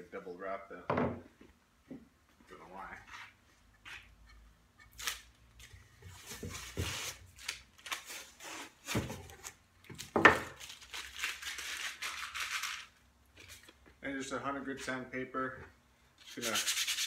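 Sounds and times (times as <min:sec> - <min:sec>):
tape peeling and ripping: 0:04.9 - 0:05.7, 0:06.8 - 0:08.8, 0:09.4 - 0:12.9.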